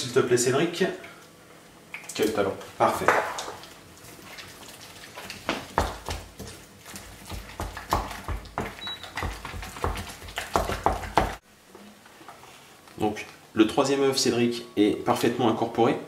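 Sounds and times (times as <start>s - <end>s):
wooden spoon beating dough in bowl: 4.2s - 11.4s.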